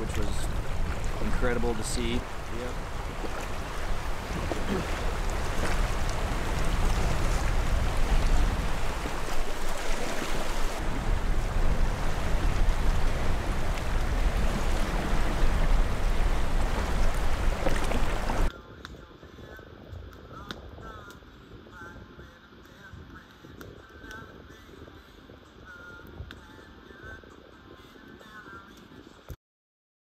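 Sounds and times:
rushing river water: 0.0s - 18.5s
wind rumbling on microphone: 0.0s - 29.4s.

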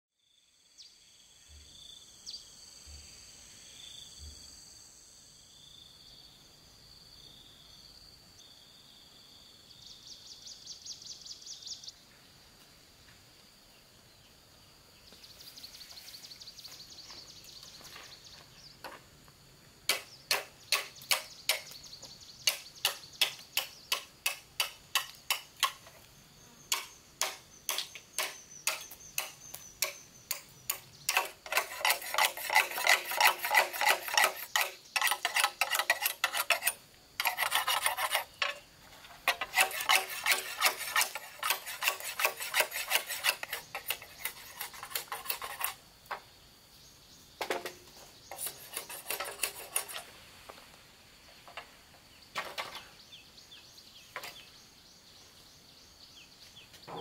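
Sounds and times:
insects calling: 0.2s - 57.0s
blade chopping bamboo: 26.7s - 38.6s.

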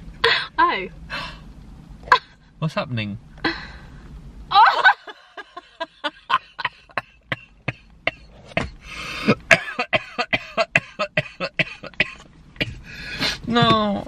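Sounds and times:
person laughing helplessly: 4.5s - 7.3s.

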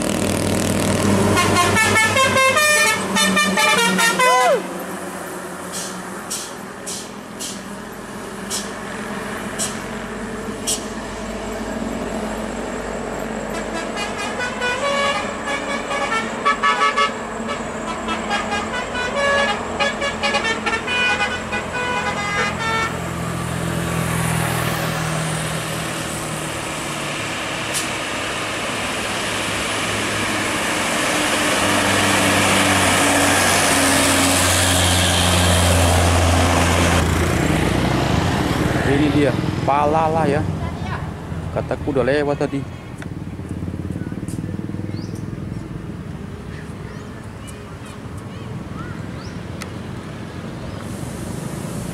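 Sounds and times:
heavy truck engine running: 0.0s - 51.9s
truck musical horn melody: 1.2s - 4.8s, 13.5s - 23.2s.

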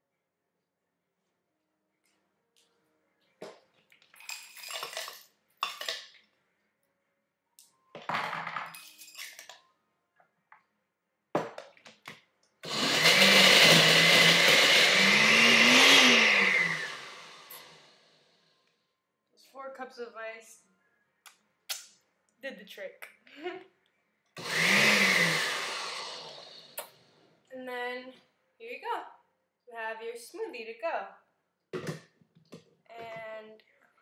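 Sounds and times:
blender crushing ice: 12.6s - 17.8s, 24.4s - 26.8s.

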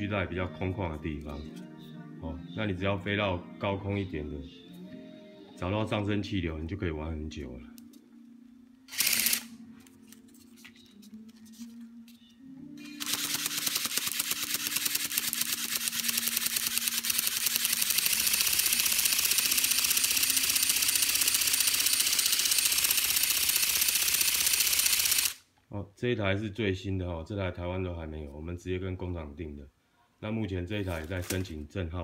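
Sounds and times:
rapid mechanical rattle: 13.0s - 25.4s.

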